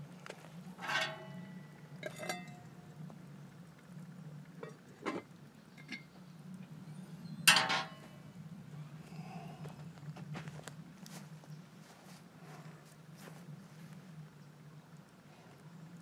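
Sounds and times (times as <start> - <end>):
metal lid clanking on pot: 0.8 - 2.7, 4.6 - 6.1, 7.4 - 8.1.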